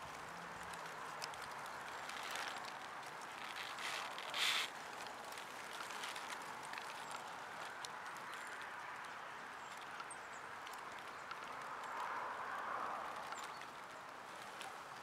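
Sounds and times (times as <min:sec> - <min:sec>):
birds pecking and cracking seeds: 0:00.0 - 0:15.0.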